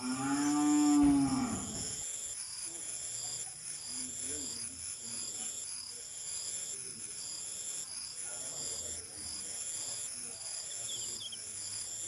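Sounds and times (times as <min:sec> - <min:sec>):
insects chirring in pulses: 0:00.0 - 0:12.0.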